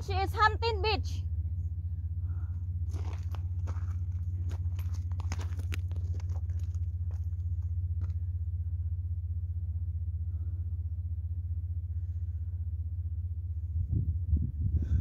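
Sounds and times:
wind buffeting microphone: 13.6 - 15.0.

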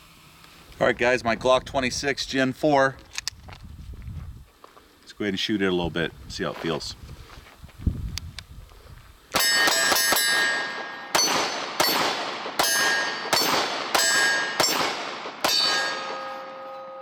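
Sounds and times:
pistol shots: 9.4 - 16.7
metallic ring: 9.4 - 17.0
steady ringing tone: 9.4 - 17.0.

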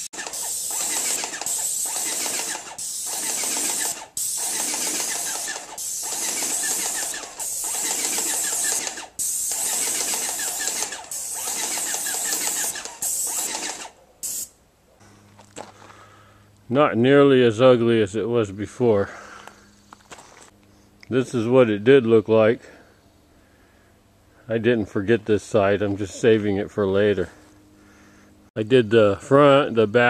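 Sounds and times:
pump mechanical chatter: 0.0 - 13.9
paint spray gun hissing: 0.0 - 14.5.

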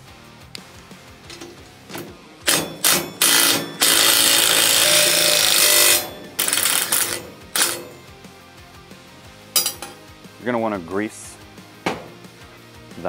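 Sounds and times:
impact driver hammering: 1.4 - 8.0, 11.9 - 12.2.

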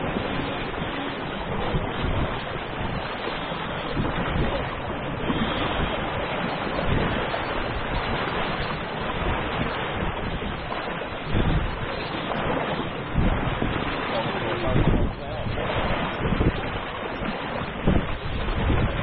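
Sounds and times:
water washing along hull: 0.0 - 19.0
wind buffeting microphone: 0.0 - 19.0.

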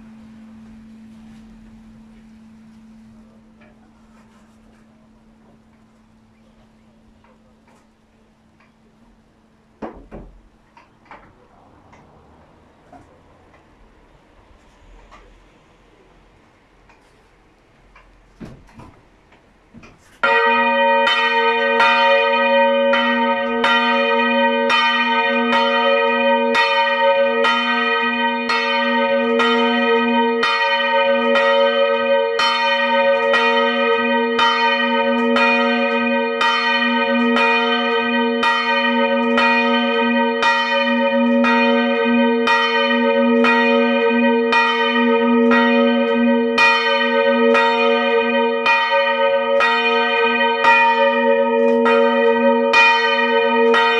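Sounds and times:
church bell ringing: 0.0 - 7.9, 20.2 - 53.9.

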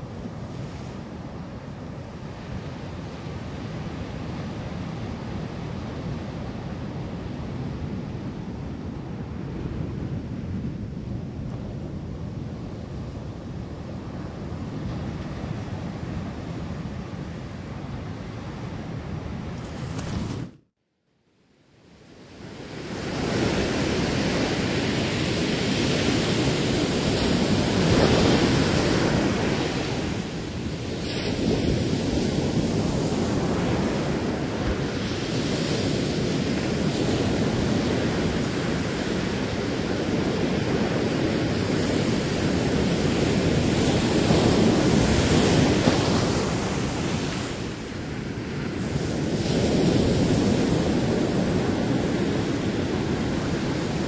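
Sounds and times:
ocean surf: 0.0 - 20.5, 22.0 - 54.0
wind buffeting microphone: 22.3 - 54.0.

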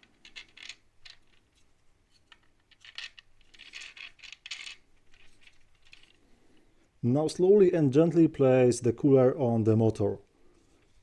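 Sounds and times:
metal screws clinking in plastic: 2.3 - 6.2.

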